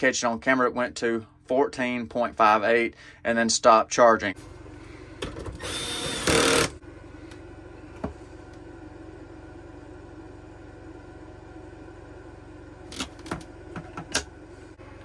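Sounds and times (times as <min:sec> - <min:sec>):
low mechanical hum: 0:00.0 - 0:15.0
cordless driver running: 0:05.2 - 0:07.4.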